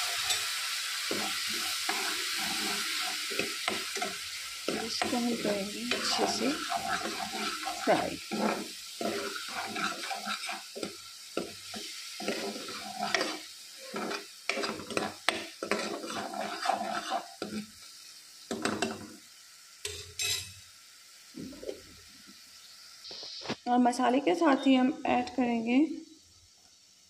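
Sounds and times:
spoon scraping a pan: 0.0 - 17.9, 18.5 - 19.2, 19.8 - 20.6
paste sizzling: 0.0 - 21.4.

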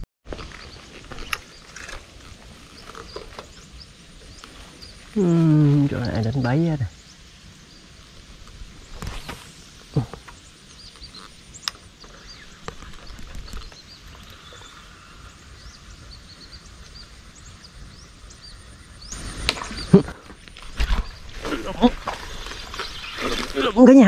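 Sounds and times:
brief rustle: 8.9 - 11.4
faint bird chirps: 9.9 - 24.0.

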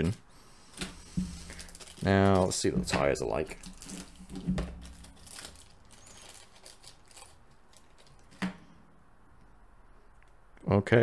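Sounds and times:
plastic bag crinkling: 1.2 - 8.4.

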